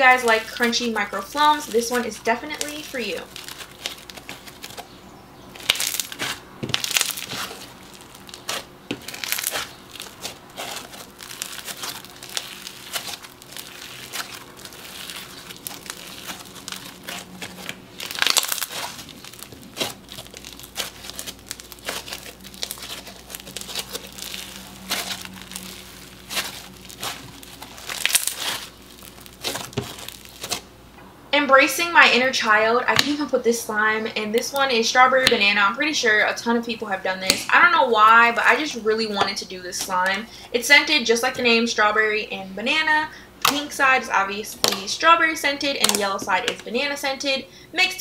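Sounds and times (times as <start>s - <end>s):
crunchy foam slime squeezed: 0.0s - 30.8s.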